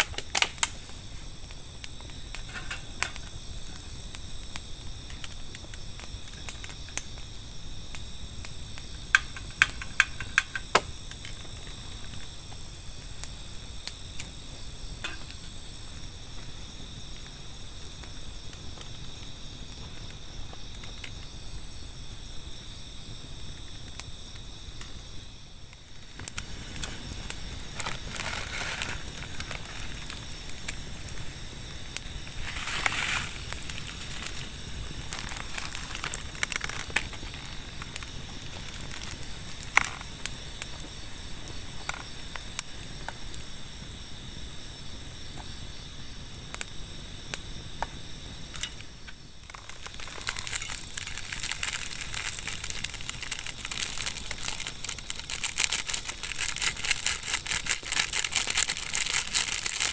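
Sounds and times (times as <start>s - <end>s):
campfire crackling and popping: 0.0s - 59.9s
night insects chirring: 0.0s - 59.9s
rustling: 25.8s - 40.1s, 48.5s - 59.9s.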